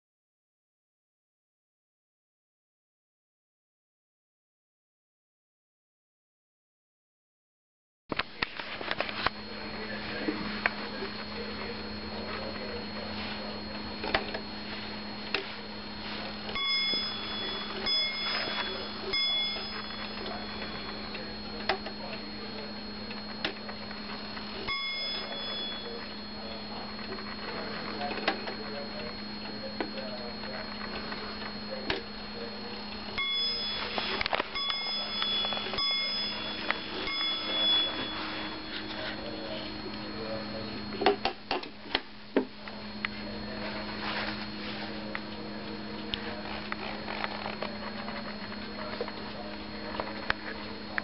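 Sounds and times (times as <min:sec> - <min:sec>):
wall clock bell striking: 0:16.0 - 0:22.8, 0:23.7 - 0:27.6, 0:33.1 - 0:39.4.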